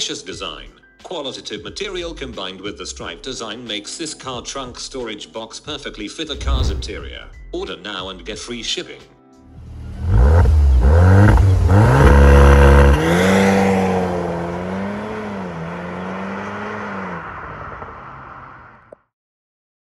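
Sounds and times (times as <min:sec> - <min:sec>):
car engine revving and accelerating: 0:09.6 - 0:18.7.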